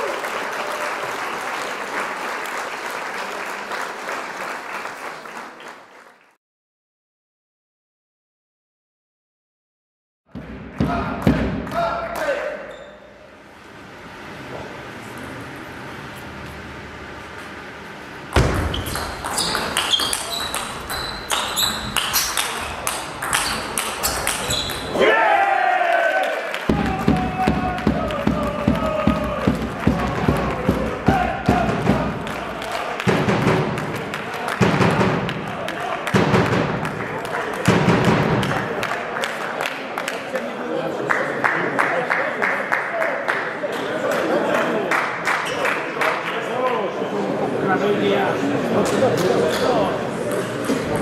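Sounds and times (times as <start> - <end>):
crowd applauding: 0.0 - 6.4, 25.2 - 47.0
ping pong ball on bats and table: 18.4 - 24.9.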